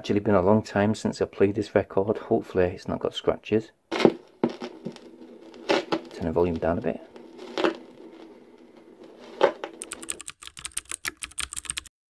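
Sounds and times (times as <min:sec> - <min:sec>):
vinyl record crackle: 0:03.9 - 0:10.2.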